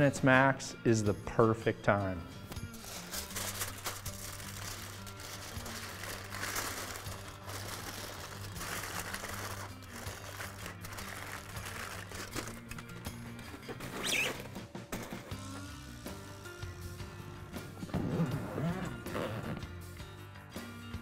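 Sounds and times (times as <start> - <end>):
background music with bass line: 0.0 - 21.0
foil crinkling: 2.7 - 14.4.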